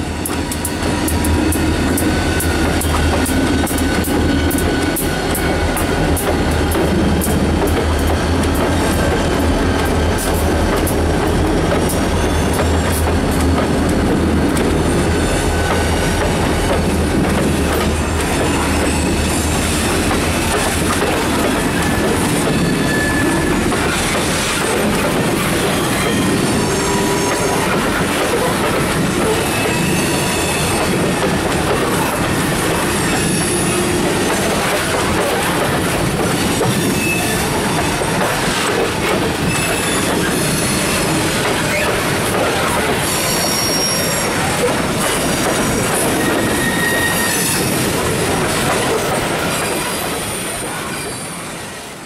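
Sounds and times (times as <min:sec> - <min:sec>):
diesel locomotive engine rumble: 0:00.0 - 0:51.6
train wheels rumbling and clattering: 0:00.0 - 0:52.0
wheel squeals: 0:17.6 - 0:20.4, 0:21.5 - 0:24.6, 0:25.4 - 0:28.5, 0:29.2 - 0:31.2, 0:32.4 - 0:34.6, 0:36.5 - 0:38.0, 0:39.4 - 0:42.2, 0:42.8 - 0:48.0.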